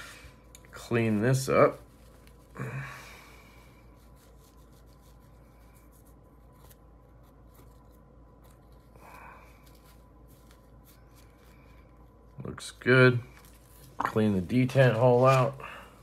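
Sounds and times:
cloth rubbing on knife blade: 3.8s - 8.9s.

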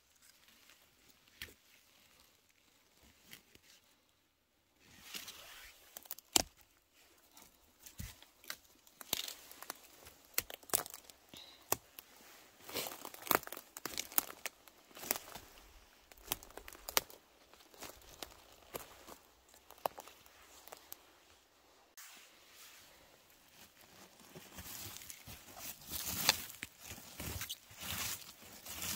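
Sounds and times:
dry forest litter rustling: 0.0s - 4.2s, 4.8s - 28.9s
twigs snapping: 5.9s - 6.7s, 7.8s - 12.0s, 12.6s - 21.0s.

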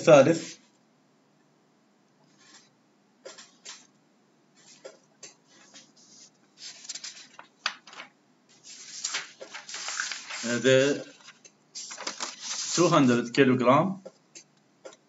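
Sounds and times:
rustling: 5.5s - 13.0s.

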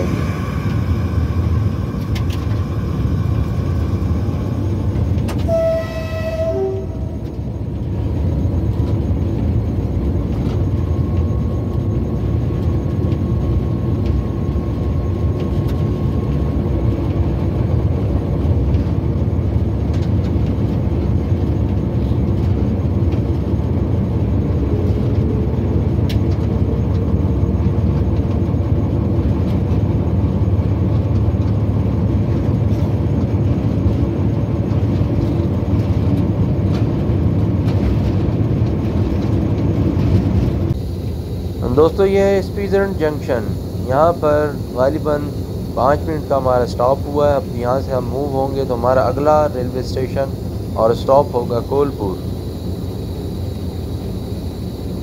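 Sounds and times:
train running noise: 0.0s - 55.0s
train horn toot: 5.3s - 7.5s.

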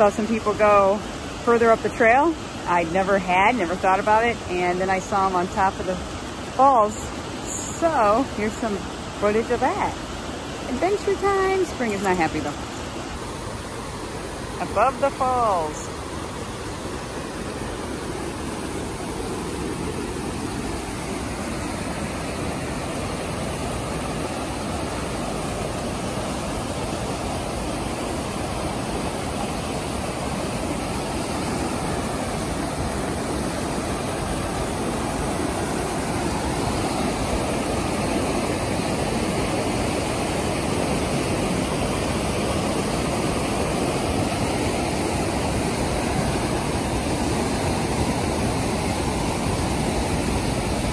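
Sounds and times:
river water rushing over rocks: 0.0s - 50.9s.

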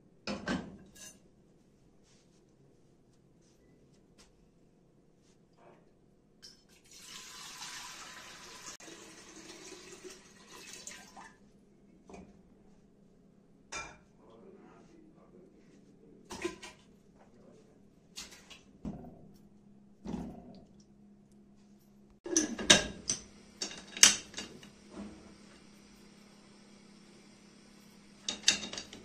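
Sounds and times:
water running from a tap: 6.8s - 11.4s
dishes and metal pot clinking: 22.3s - 25.1s, 28.2s - 29.0s.

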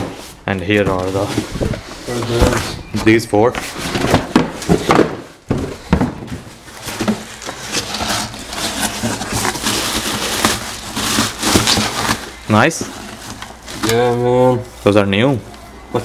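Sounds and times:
cardboard knocks and scrapes: 0.0s - 13.4s
plastic wrap crinkling: 6.4s - 14.1s.

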